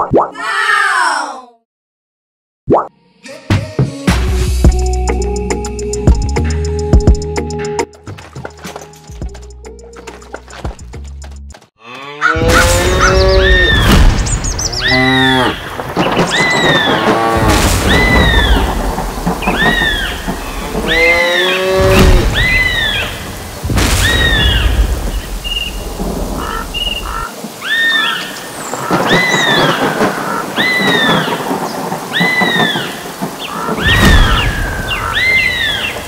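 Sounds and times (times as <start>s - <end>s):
cow mooing: 11.8s - 13.7s, 14.8s - 15.6s, 20.8s - 22.2s
thunder: 12.4s - 27.2s, 28.3s - 36.0s
steady rain: 12.7s - 36.0s.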